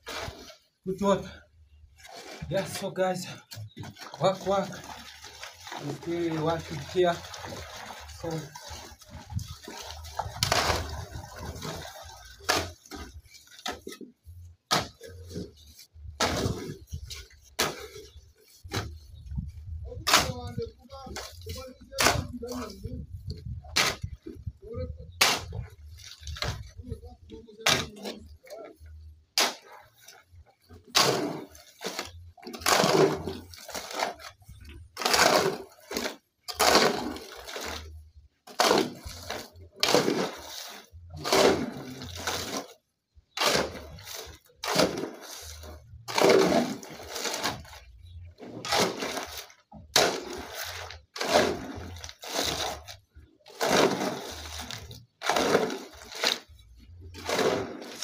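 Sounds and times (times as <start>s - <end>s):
shovel scraping concrete mix: 0.0s - 1.4s, 2.0s - 14.1s, 14.7s - 19.2s, 19.8s - 58.0s.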